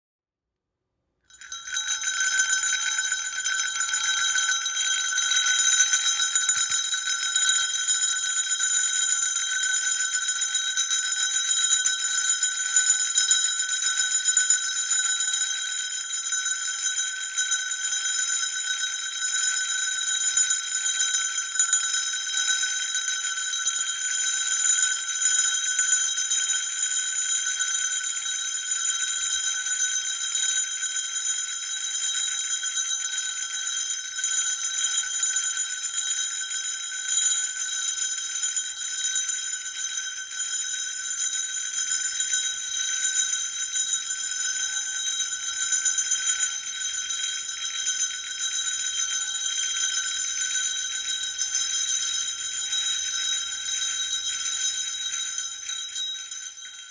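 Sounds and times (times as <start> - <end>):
sleigh bells jingling: 1.3 - 8.6, 43.4 - 56.9.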